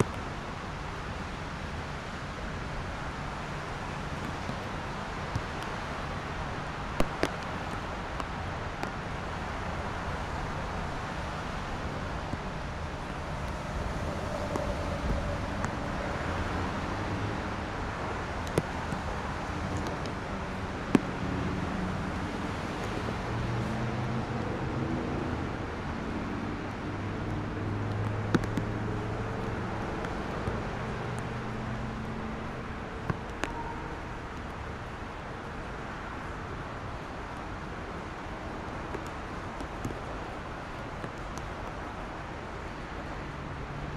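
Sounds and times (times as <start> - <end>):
traffic on wet road: 0.0 - 43.9
low hum: 10.4 - 18.4.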